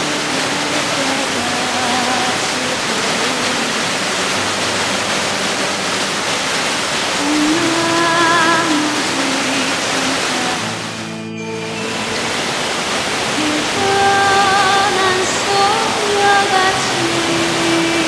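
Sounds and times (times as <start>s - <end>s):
soft melody: 0.0s - 18.0s
waterfall rushing over rocks: 0.0s - 18.0s.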